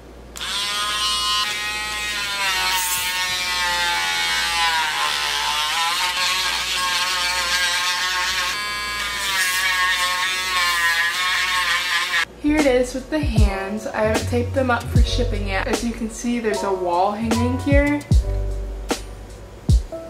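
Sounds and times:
rotary tool sanding resin: 0.4s - 12.3s.

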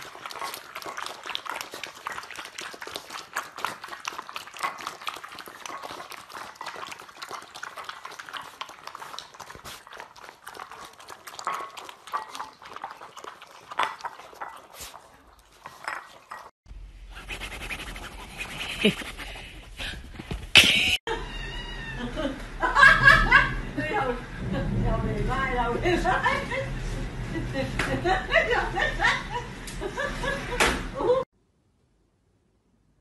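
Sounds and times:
puppies lapping and chewing: 0.0s - 16.6s.

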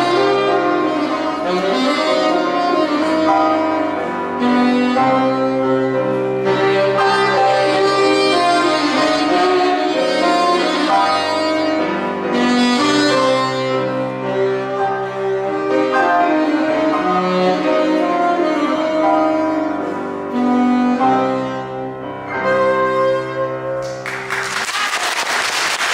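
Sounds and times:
saxophone melody: 0.0s - 24.0s
grand piano: 0.0s - 25.0s
applause: 23.8s - 25.9s.

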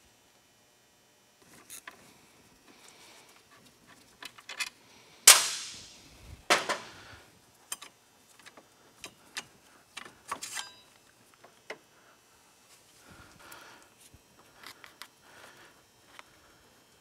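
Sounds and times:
metal clanks with ringing: 10.4s - 10.9s.

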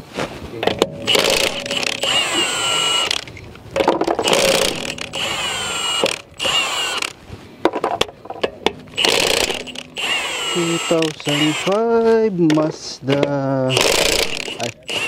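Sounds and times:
impact wrench bursts: 0.7s - 7.2s, 8.6s - 12.6s, 13.6s - 15.0s.

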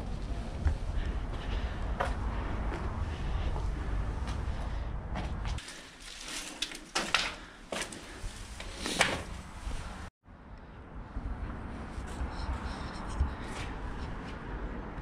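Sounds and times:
wind rumble on microphone: 0.0s - 5.6s, 9.4s - 15.0s
crunching footsteps on rubble: 5.2s - 9.1s.

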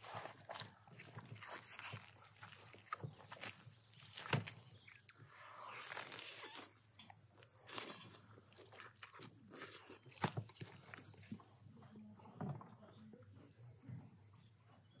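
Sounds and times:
meat tearing and chewing: 0.0s - 6.8s, 7.4s - 11.4s.

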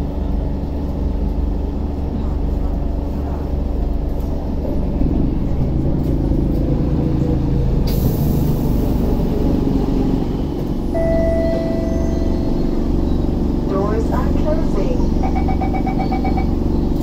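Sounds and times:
train rumble with motor tones: 0.0s - 17.0s
steady high tone: 10.9s - 12.8s.

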